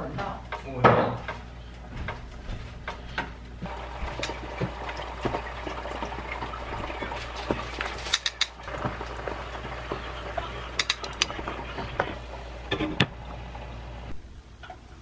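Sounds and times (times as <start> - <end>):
metal utensils clinking: 7.8 - 8.6, 10.8 - 11.3.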